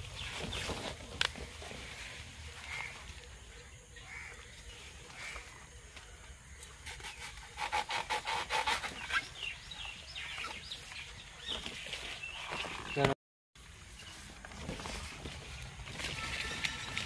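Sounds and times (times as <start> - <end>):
rustle of stalks being handled: 0.0 - 3.5, 10.4 - 17.0.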